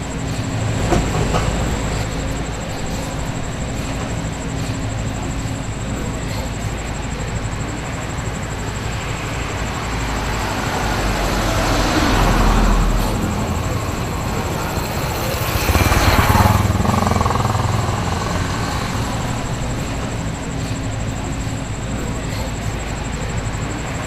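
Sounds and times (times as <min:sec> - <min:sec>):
steady traffic noise: 0:00.0 - 0:24.0
car passing: 0:06.9 - 0:24.0
motorcycle riding by: 0:09.7 - 0:20.5.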